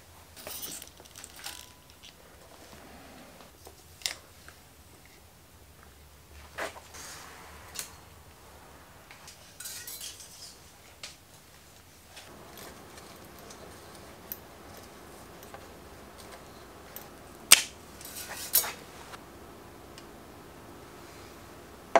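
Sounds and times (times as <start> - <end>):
metal tools clicking and clinking: 0.4 - 2.2, 9.6 - 10.6, 12.3 - 18.8.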